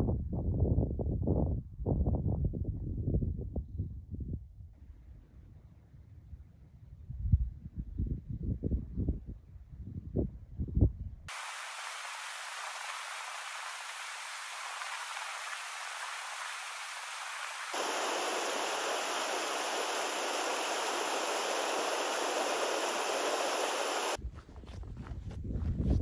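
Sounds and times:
stream water rushing over boulders: 11.3 - 24.2.

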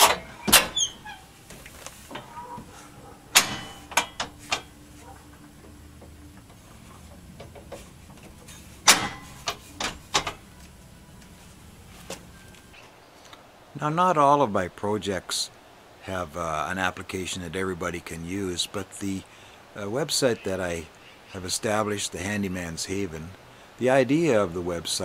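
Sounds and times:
metal clunks and clicks: 0.0 - 11.4.

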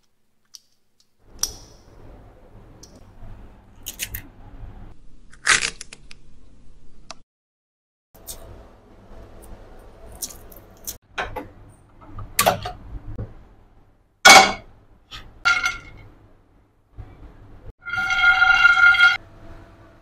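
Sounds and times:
kitchen clicks and knocks: 11.1 - 13.3.

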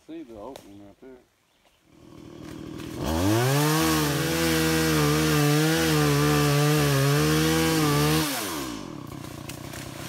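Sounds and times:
chainsaw revving: 1.9 - 10.0.

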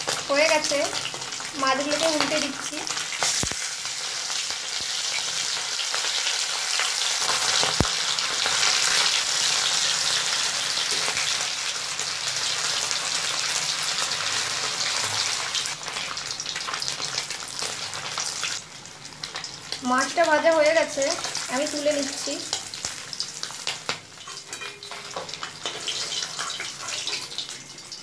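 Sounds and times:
fish frying in oil: 0.0 - 28.0.

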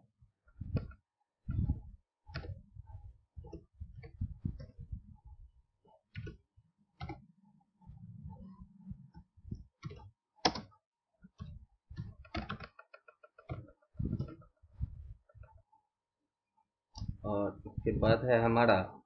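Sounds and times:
keyboard key clicks: 9.8 - 10.7.

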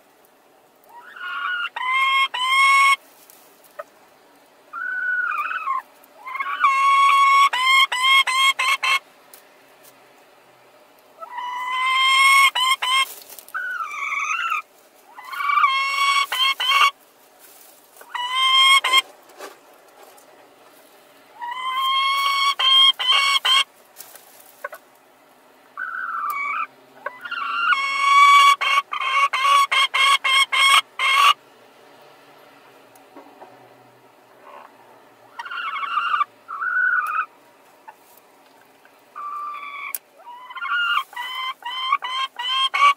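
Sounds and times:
hen squawking and clucking: 0.9 - 3.0, 4.7 - 9.0, 11.2 - 17.0, 17.6 - 19.3, 21.2 - 23.7, 25.8 - 31.4, 34.3 - 38.1, 39.1 - 42.9.

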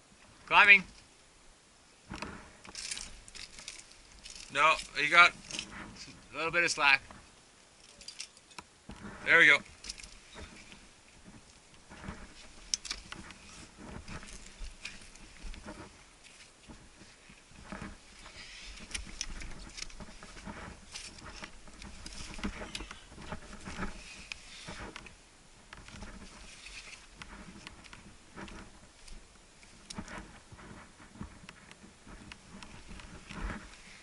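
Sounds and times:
shoes rubbing on rock: 9.0 - 25.2, 25.8 - 34.0.

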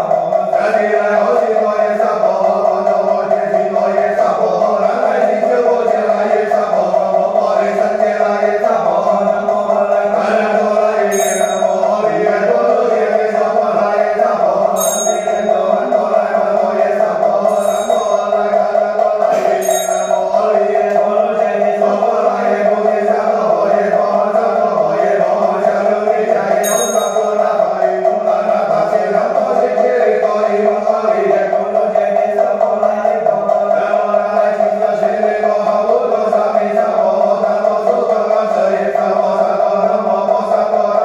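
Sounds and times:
mantra chanting: 0.0 - 41.0
high ringing chime: 11.1 - 12.0, 14.8 - 15.9, 17.4 - 18.6, 19.3 - 20.4, 26.6 - 27.5.

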